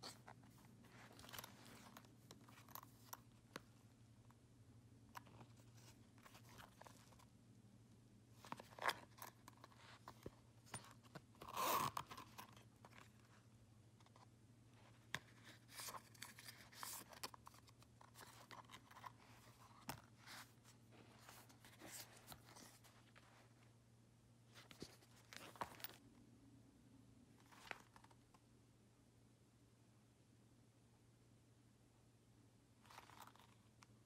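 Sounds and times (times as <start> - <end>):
wallet clicks and rustles: 0.0 - 4.3, 5.1 - 7.3, 8.4 - 23.6, 24.5 - 26.1, 27.4 - 28.2, 32.8 - 33.8
faint low hum: 0.0 - 34.0.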